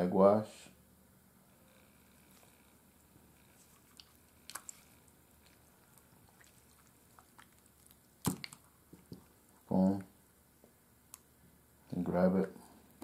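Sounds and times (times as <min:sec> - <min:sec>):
wet squishes and drips: 0:03.6 - 0:10.1.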